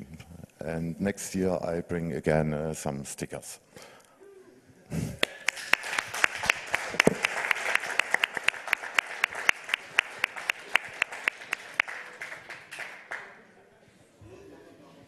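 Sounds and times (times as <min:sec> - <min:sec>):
audience applauding: 0:05.2 - 0:13.5
close hand clapping: 0:05.2 - 0:13.5.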